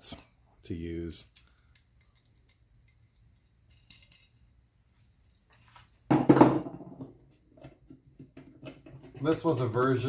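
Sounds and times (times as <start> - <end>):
metal parts clicking: 1.2 - 4.4.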